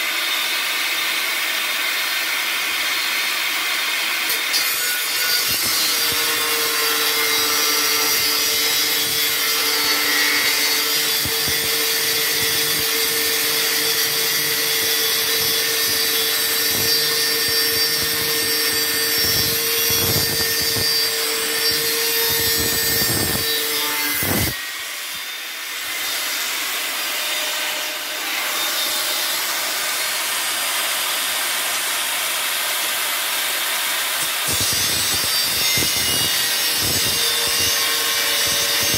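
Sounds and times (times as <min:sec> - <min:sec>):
angle grinder motor whine: 0:11.0 - 0:25.2.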